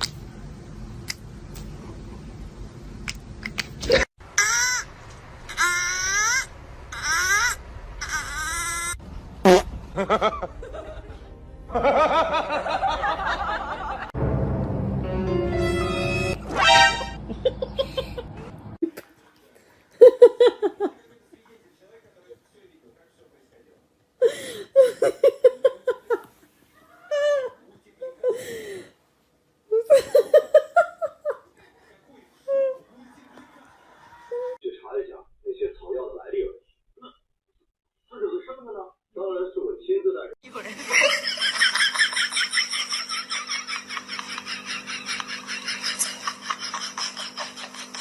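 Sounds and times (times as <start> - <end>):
snickering laugh effect: 9.5 - 11.1, 40.6 - 48.0
background music: 10.6 - 13.2, 14.2 - 17.2
cartoon gliding sound effects: 15.6 - 17.2.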